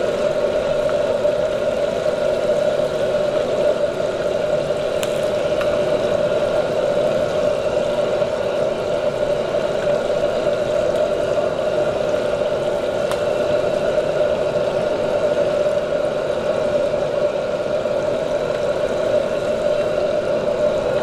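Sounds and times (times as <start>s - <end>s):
deep-frying sizzle: 0.0s - 21.0s
steady background roar: 0.0s - 21.0s.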